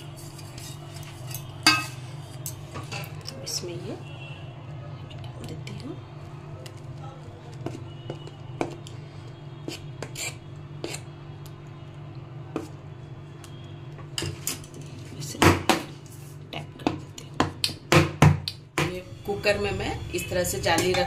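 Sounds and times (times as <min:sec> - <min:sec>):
metal spoon scraping steel container: 0:00.0 - 0:03.4, 0:09.7 - 0:11.1.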